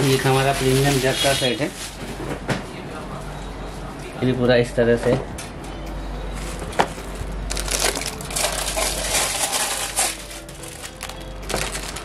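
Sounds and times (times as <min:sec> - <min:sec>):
cardboard and plastic rustling: 0:00.0 - 0:02.6, 0:06.4 - 0:12.0.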